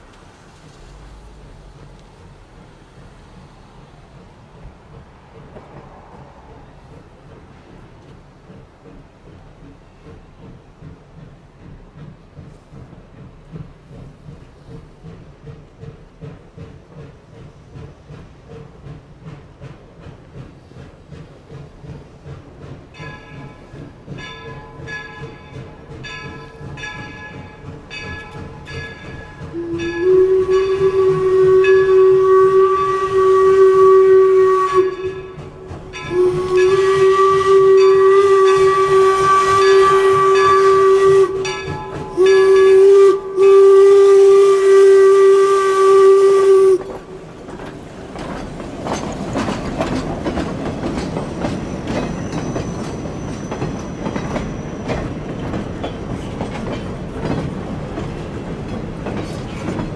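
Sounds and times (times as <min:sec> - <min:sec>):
train wheels clattering on rails: 0:00.0 - 0:59.9
steam whistle blasts: 0:29.5 - 0:35.4, 0:36.0 - 0:47.2.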